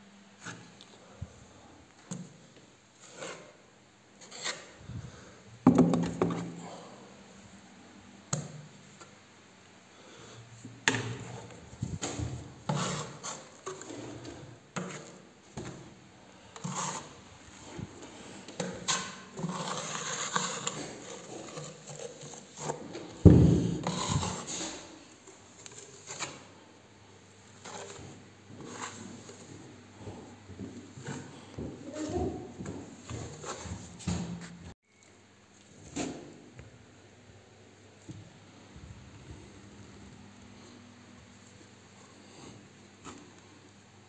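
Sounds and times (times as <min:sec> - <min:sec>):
spatula scraping plaster on wall: 0:03.0 - 0:03.6, 0:04.2 - 0:04.8, 0:10.9 - 0:26.5, 0:27.4 - 0:29.6.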